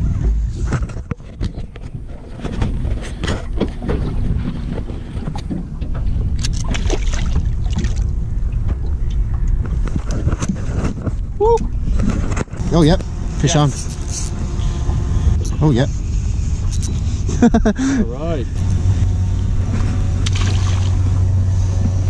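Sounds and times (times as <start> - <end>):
knocks and rattles in boat: 0.0 - 13.0
wind buffeting microphone: 0.0 - 22.0.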